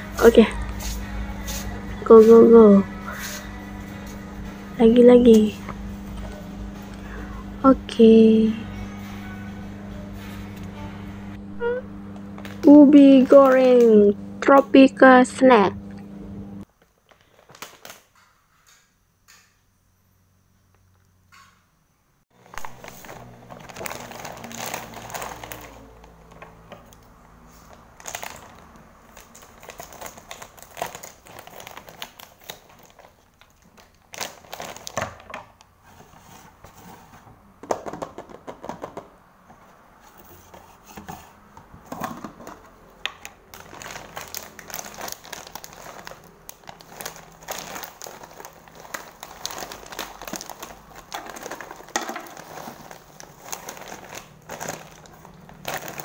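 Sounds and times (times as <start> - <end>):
plastic snack bag crinkling: 16.7 - 18.2, 22.4 - 26.6, 27.5 - 35.4, 43.2 - 56.0
chips pouring into plastic jar: 22.6 - 26.0, 43.6 - 56.0.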